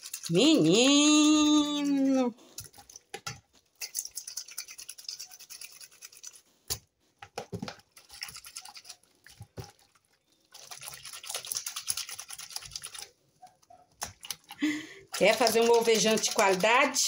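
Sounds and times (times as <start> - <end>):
sock rubbed in soapy water: 15.1 - 17.0.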